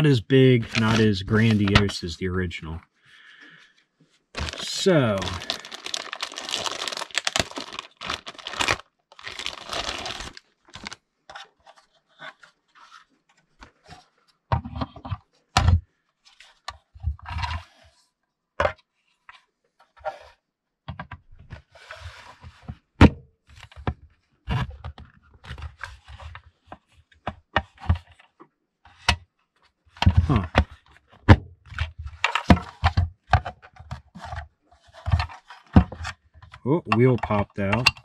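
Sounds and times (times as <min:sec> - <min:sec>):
plastic packaging rustling: 0:00.6 - 0:01.9, 0:04.4 - 0:11.0.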